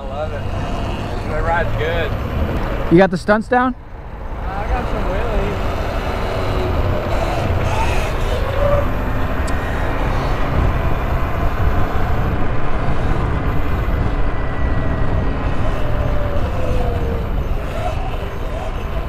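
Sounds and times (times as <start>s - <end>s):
wind and road noise: 0.0s - 19.0s
electric motor whine: 4.2s - 19.0s.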